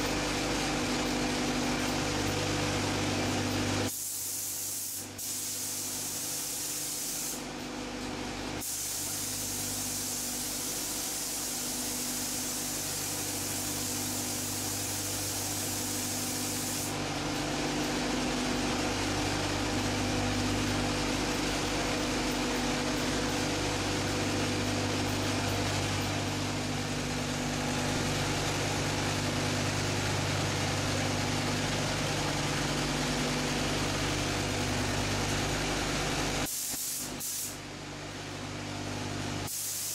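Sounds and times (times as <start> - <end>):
low machine hum: 0.0 - 3.9, 7.4 - 36.5
spray gun hissing: 3.9 - 7.4, 8.6 - 17.0, 36.4 - 37.6, 39.5 - 39.9.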